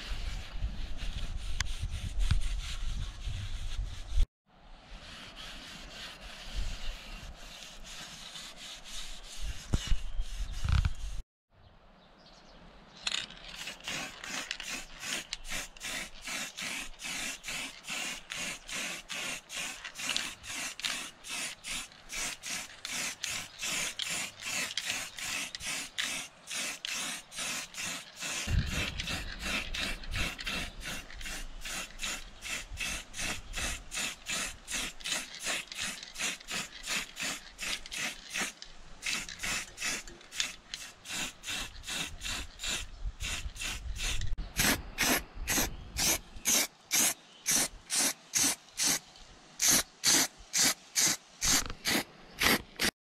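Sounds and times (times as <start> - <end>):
spray paint hissing: 13.5 - 49.0, 49.6 - 53.0.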